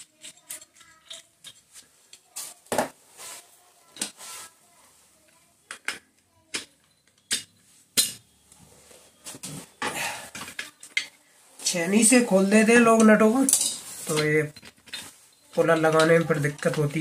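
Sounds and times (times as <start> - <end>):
metal parts and tools clinking: 0.0 - 2.3, 12.1 - 17.0.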